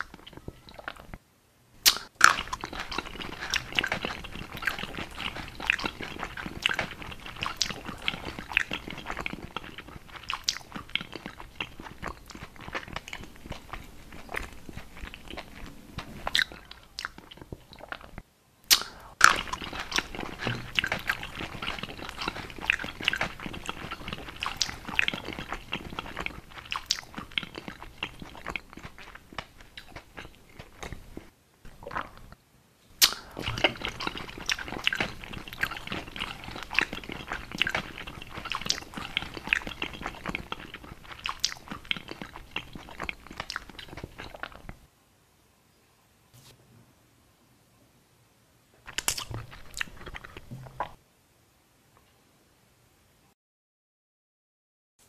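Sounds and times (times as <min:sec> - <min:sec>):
chewing and crunching: 0:00.0 - 0:01.2, 0:01.8 - 0:32.4, 0:33.0 - 0:44.9, 0:48.8 - 0:51.0
sharp loud bite: 0:01.8 - 0:02.6, 0:18.7 - 0:23.3, 0:33.0 - 0:34.0
wet mouth clicks: 0:01.8 - 0:32.4, 0:33.0 - 0:44.9, 0:48.9 - 0:51.0.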